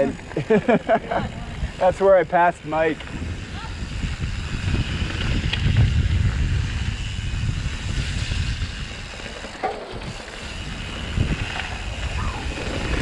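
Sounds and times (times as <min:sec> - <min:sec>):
bike tyres rumbling over dirt: 0:00.0 - 0:13.0
wind buffeting microphone: 0:00.0 - 0:13.0.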